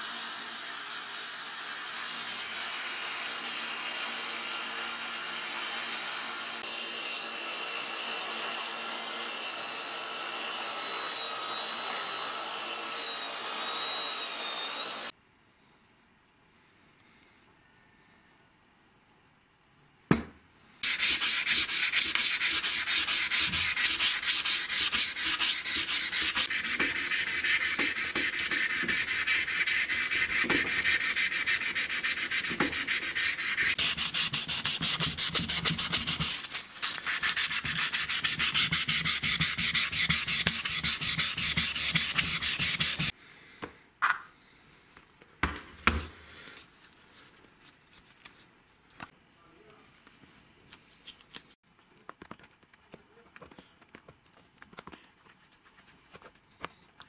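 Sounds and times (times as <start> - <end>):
sandpaper sanding metal: 20.8 - 43.1.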